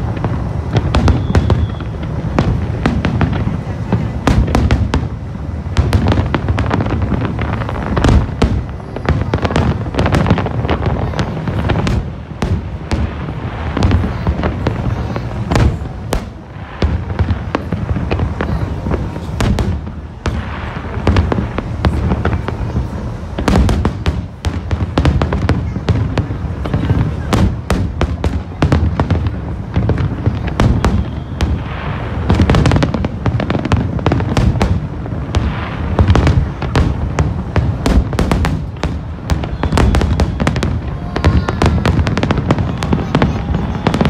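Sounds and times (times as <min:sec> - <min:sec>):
fireworks bursting: 0:00.0 - 0:44.0.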